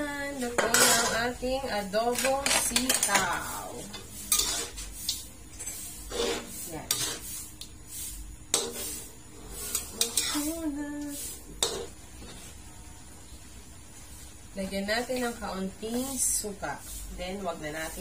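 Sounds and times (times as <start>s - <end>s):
metal spatula scraping a wok: 0.4s - 12.7s.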